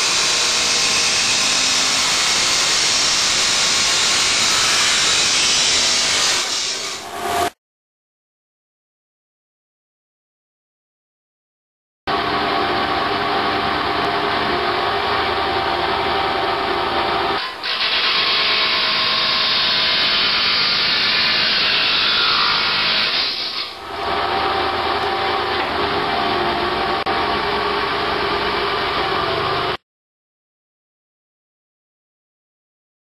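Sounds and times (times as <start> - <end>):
saw wheel spinning with whine: 0.0 - 7.6, 12.1 - 29.8.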